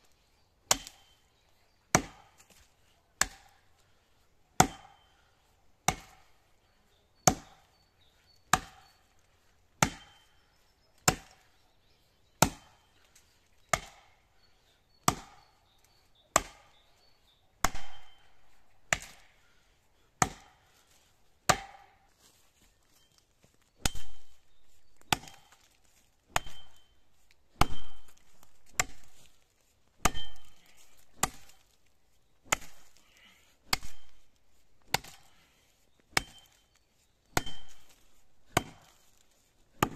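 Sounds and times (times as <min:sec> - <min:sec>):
axe chopping into tree trunk: 0:00.7 - 0:01.1, 0:01.9 - 0:02.6, 0:03.2 - 0:03.6, 0:04.6 - 0:05.0, 0:05.8 - 0:06.3, 0:07.2 - 0:07.6, 0:08.5 - 0:08.9, 0:09.8 - 0:10.2, 0:11.0 - 0:11.4, 0:12.4 - 0:12.7, 0:13.7 - 0:14.1, 0:15.1 - 0:15.4, 0:16.3 - 0:16.8, 0:17.6 - 0:18.2, 0:18.9 - 0:19.2, 0:20.2 - 0:20.5, 0:21.5 - 0:21.9, 0:23.8 - 0:24.4, 0:25.0 - 0:25.7, 0:26.3 - 0:26.9, 0:27.5 - 0:29.4, 0:30.0 - 0:31.7, 0:32.5 - 0:32.9, 0:33.6 - 0:34.2, 0:34.9 - 0:35.3, 0:36.1 - 0:36.6, 0:37.4 - 0:39.2.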